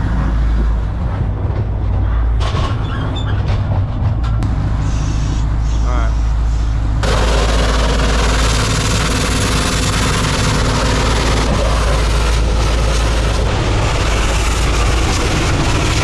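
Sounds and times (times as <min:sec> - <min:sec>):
boat engine droning: 0:04.4 - 0:16.0.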